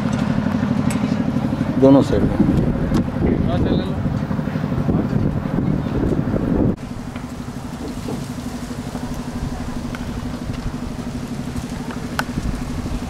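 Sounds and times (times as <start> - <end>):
vehicle engine humming: 0.0 - 13.0.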